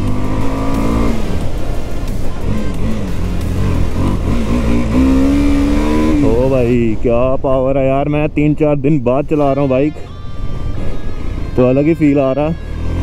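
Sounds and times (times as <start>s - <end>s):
motorcycle engine running: 0.0s - 6.8s.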